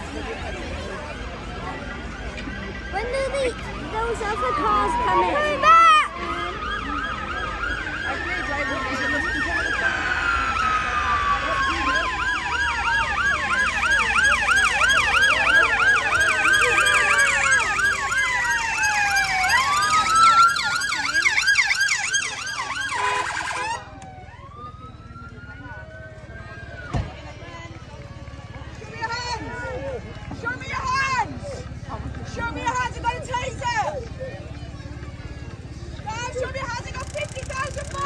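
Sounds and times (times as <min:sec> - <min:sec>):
police sirens wailing and yelping: 0:00.0 - 0:38.0
siren whoop: 0:02.9 - 0:27.0.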